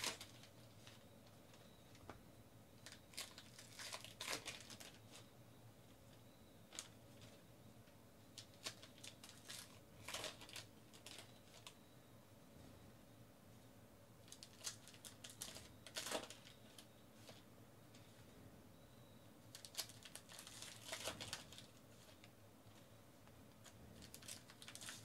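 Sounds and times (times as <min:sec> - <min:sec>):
wrapper crinkling: 0:00.0 - 0:01.0, 0:02.8 - 0:05.2, 0:08.4 - 0:11.8, 0:14.2 - 0:16.8, 0:19.5 - 0:22.2, 0:23.6 - 0:25.0.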